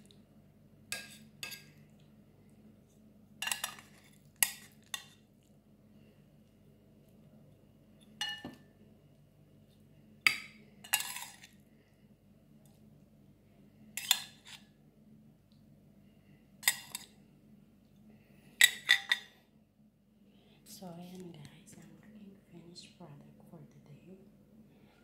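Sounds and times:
dishes and cutlery clinking: 3.4 - 5.2, 8.2 - 8.6.

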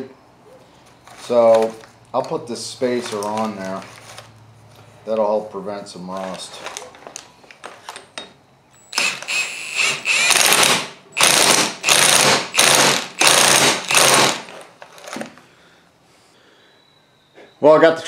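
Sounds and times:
impact wrench bursts: 8.8 - 14.6.

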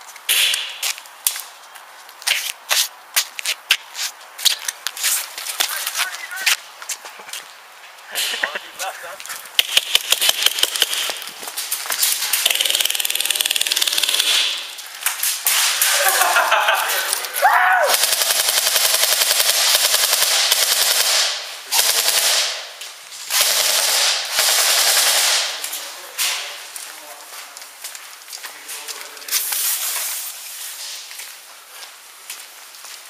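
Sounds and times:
airsoft rifles firing automatic bursts: 9.6 - 11.2, 12.3 - 14.7, 17.9 - 22.7, 23.3 - 25.7.

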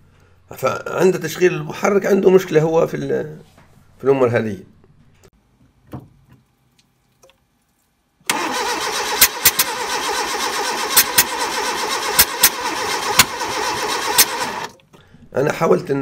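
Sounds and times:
petrol engine running: 8.3 - 14.8.

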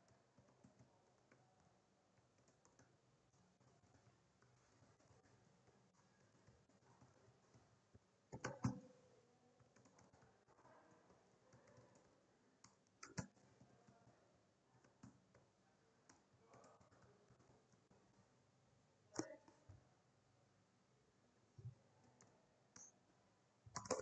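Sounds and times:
typing on computer keyboard: 8.3 - 8.9, 9.6 - 10.3, 11.5 - 13.7, 23.7 - 24.0.

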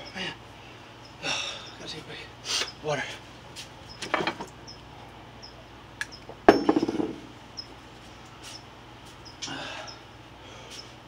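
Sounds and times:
object clattering on concrete: 4.0 - 4.5, 6.5 - 7.3.

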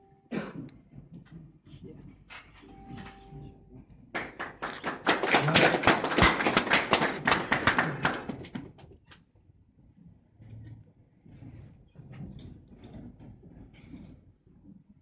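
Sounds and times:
audience clapping: 4.1 - 8.9.

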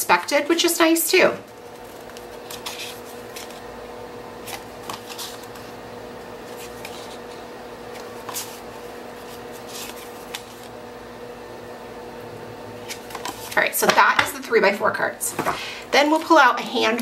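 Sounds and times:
faint steady hum: 0.0 - 17.0
paper cards swishing: 1.5 - 3.7, 4.4 - 5.8, 6.4 - 10.7.

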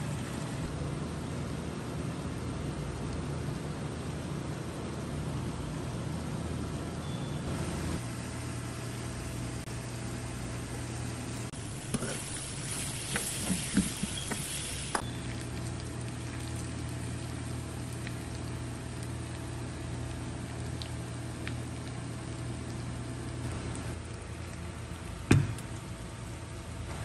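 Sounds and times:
steady low hum: 0.0 - 27.0
cabbage sizzling in a frying pan: 11.6 - 16.2.

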